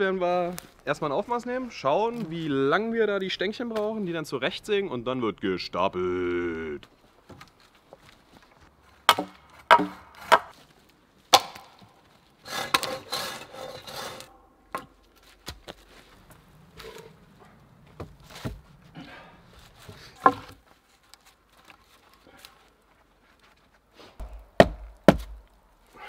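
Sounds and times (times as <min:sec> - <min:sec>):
wooden poles knocking together: 0:09.1 - 0:10.5, 0:19.8 - 0:20.6
wood scraping on wood: 0:12.0 - 0:24.4.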